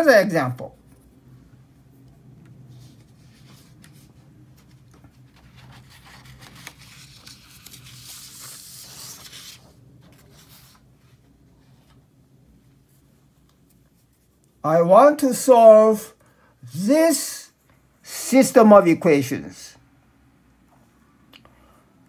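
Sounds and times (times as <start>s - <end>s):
paper sheets rustling and sliding: 2.7s - 12.1s.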